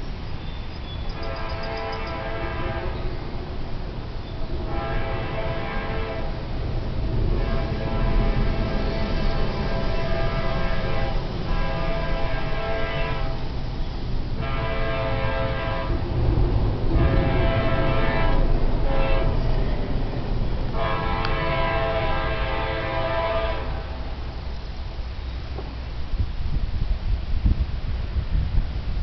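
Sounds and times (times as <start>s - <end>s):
train rumble: 0.0s - 29.0s
locomotive air horn blasts: 1.1s - 3.1s, 4.6s - 6.5s, 7.2s - 13.5s, 14.4s - 16.1s, 16.9s - 19.5s, 20.7s - 24.2s.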